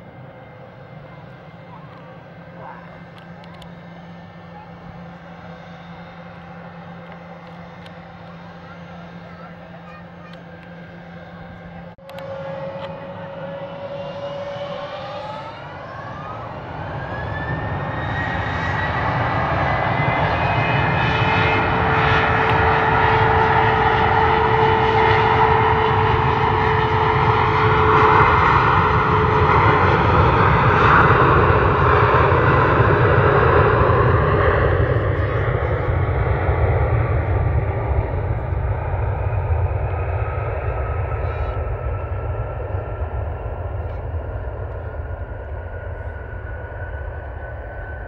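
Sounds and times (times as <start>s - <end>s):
jet engines spooling up: 0.0s - 48.0s
jet roar: 0.0s - 48.0s.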